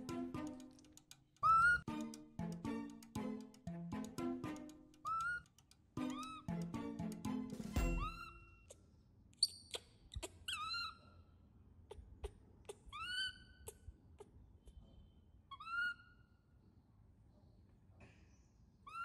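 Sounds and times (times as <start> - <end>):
sharp clicks: 0.0 - 8.3
baby monkey whistle-like calls: 1.4 - 1.9, 5.0 - 5.5, 6.1 - 6.5, 7.7 - 8.8, 9.4 - 11.2, 12.7 - 16.4.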